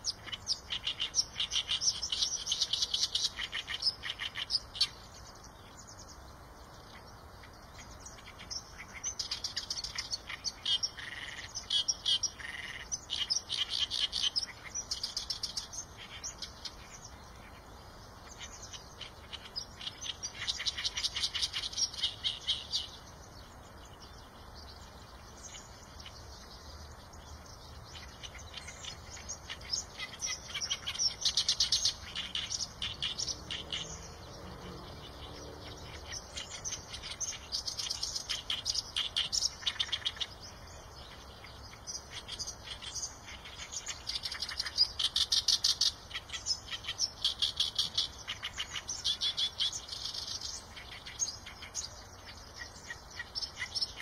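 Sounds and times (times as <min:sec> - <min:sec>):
reed warbler singing: 0:00.0 - 0:54.0.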